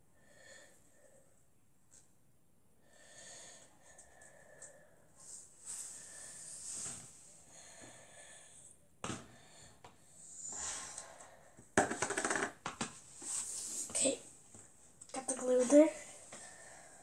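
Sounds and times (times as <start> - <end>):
breathing close to microphone: 2.9 - 11.6, 16.0 - 17.0.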